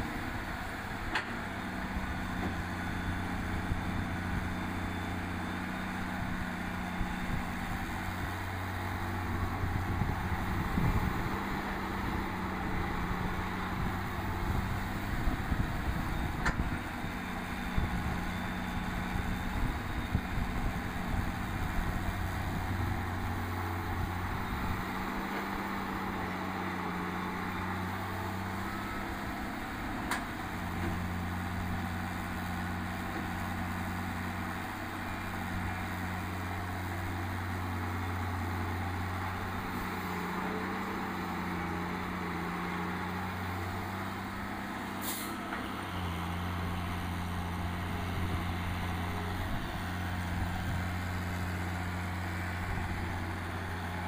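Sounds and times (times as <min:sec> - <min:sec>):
excavator diesel engine: 0:00.0 - 0:54.0.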